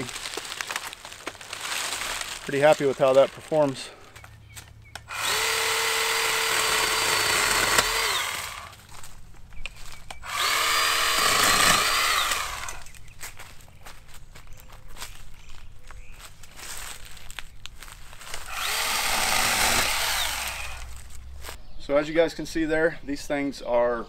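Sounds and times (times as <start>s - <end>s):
electric pole saw whining: 5.1s - 8.8s, 10.2s - 12.9s, 18.3s - 21.0s.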